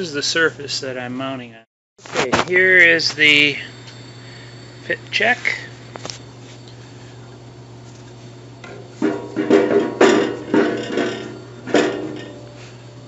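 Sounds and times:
short ringing tone: 2.6s - 7.2s
wood knocking on metal frame: 8.7s - 12.4s.

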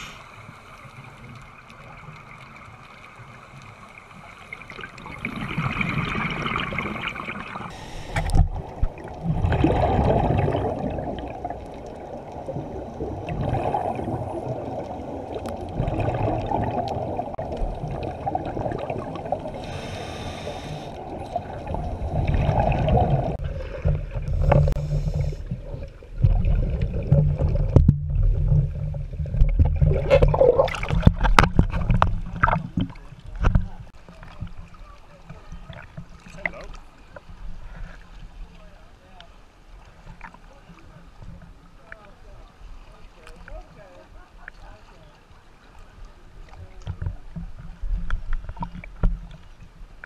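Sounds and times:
scuba regulator breathing: 0.0s - 0.4s, 7.7s - 8.4s, 19.4s - 22.3s, 24.2s - 25.6s
water rumbling in shallows: 0.0s - 50.0s
exhaled bubbles: 4.5s - 33.6s.

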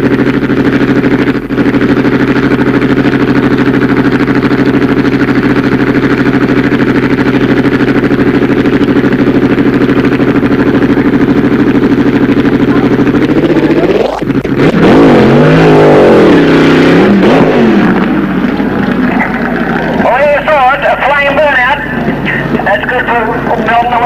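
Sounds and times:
dragster engine idling loudly: 0.0s - 24.0s.

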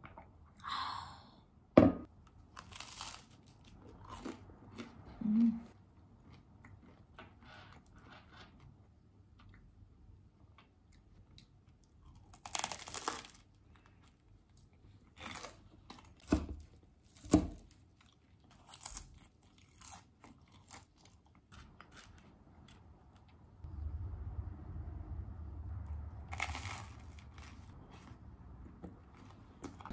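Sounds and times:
crunchy bites and chewing: 2.3s - 5.0s, 11.3s - 22.9s, 26.3s - 28.1s.

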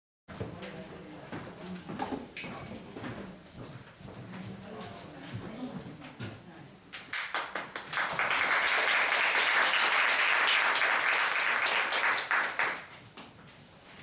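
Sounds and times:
small audience clapping: 7.0s - 13.3s.

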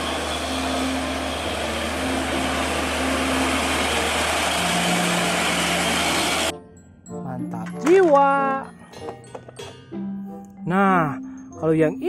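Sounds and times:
road noise rushing: 0.0s - 6.5s
diesel truck engine: 0.0s - 6.6s.

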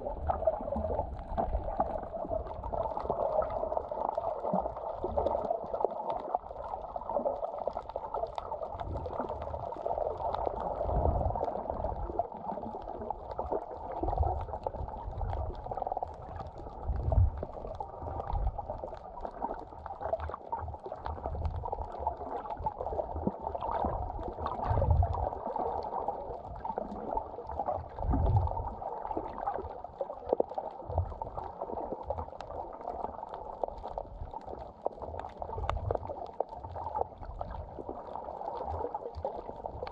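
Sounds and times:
underwater thumps and sloshes: 0.0s - 3.7s, 27.8s - 29.6s
muffled underwater wash: 0.0s - 39.9s.

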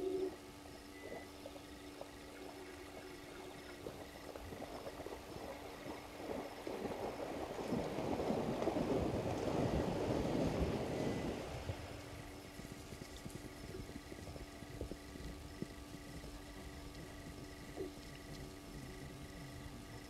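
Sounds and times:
water splashing: 1.0s - 19.2s.

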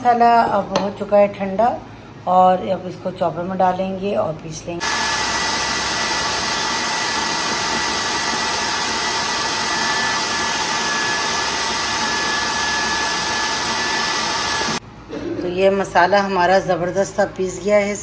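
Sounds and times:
food processor motor whirring: 4.8s - 14.8s.

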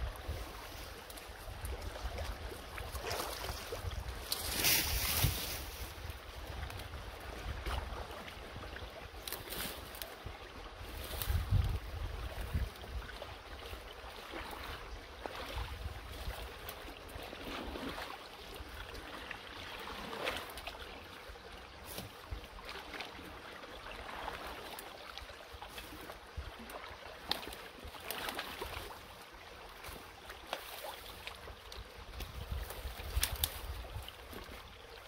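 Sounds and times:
shallow water sloshing and splashing: 0.0s - 35.0s
brush cracking and rustling: 0.1s - 7.0s, 9.2s - 10.2s, 10.9s - 11.8s, 25.6s - 29.0s, 29.8s - 34.2s.

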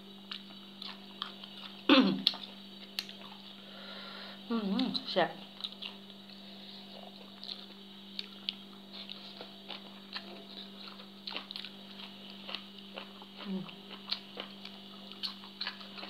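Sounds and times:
steady low hum: 0.0s - 16.0s
wet chewing smacks and clicks: 0.3s - 3.4s, 7.2s - 16.0s.

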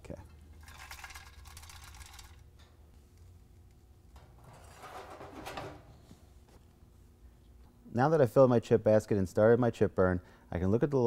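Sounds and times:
metal basket scraping: 4.4s - 5.8s.

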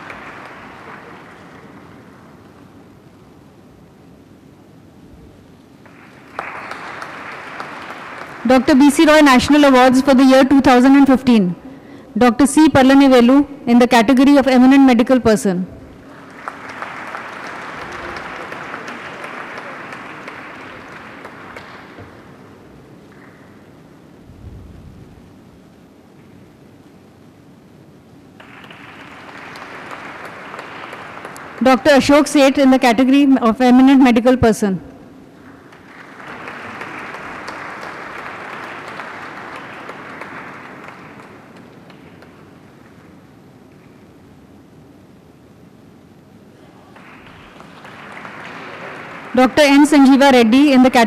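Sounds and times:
audience applauding: 0.0s - 2.8s, 5.8s - 9.7s, 15.9s - 23.9s, 28.4s - 32.4s, 35.3s - 43.2s, 46.5s - 50.8s.

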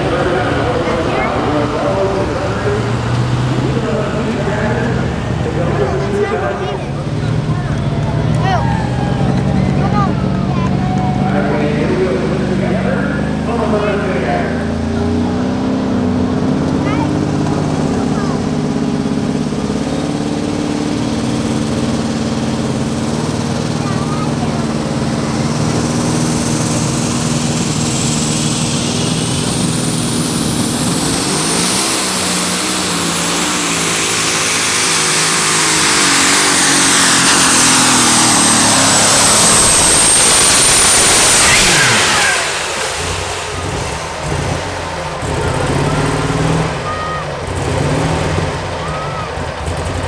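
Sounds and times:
diesel engine revving: 0.0s - 50.0s.

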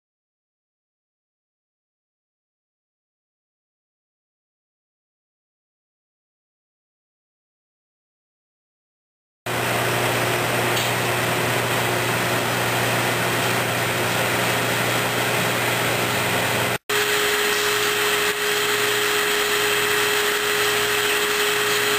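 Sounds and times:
centrifuge whirring: 9.5s - 21.9s.

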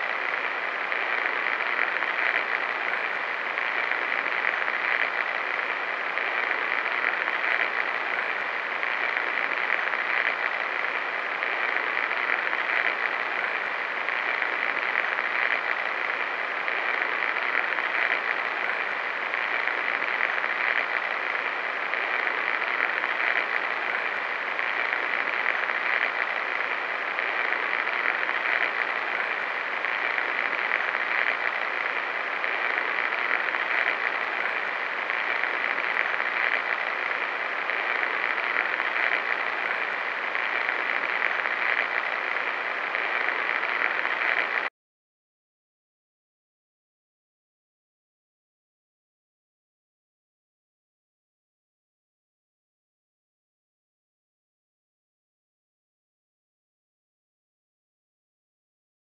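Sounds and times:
television static hiss: 0.0s - 44.7s.

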